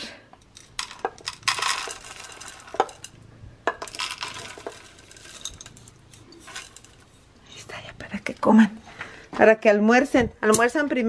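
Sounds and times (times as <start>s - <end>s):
kibble rattling into ceramic bowls: 0.4s - 7.2s.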